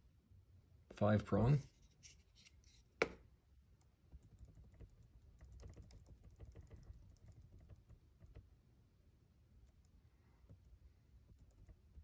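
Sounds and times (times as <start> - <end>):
computer mouse and key clicks: 3.8 - 8.5, 9.6 - 12.0.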